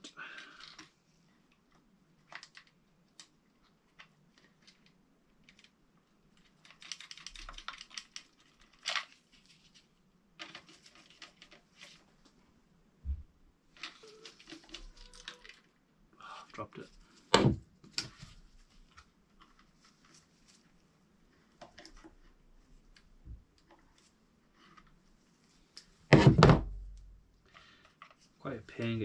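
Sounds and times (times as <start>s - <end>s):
clicks and rattles of small parts: 0.4s - 12.1s, 13.7s - 15.7s.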